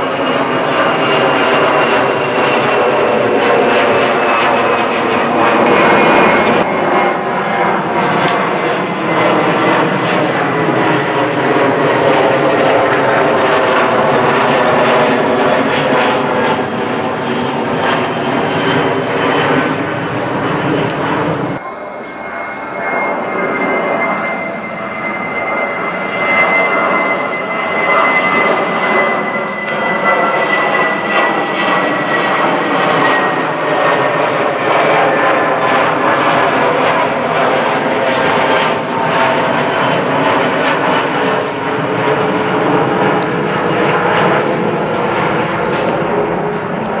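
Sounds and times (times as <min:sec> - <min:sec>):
jet airliner roar and whine: 0:00.0 - 0:47.0.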